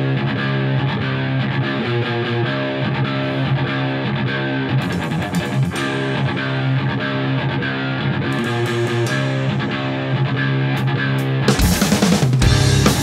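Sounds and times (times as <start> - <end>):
bass guitar: 0.0 - 13.0
electric guitar riff: 0.0 - 13.0
drums: 4.8 - 13.0.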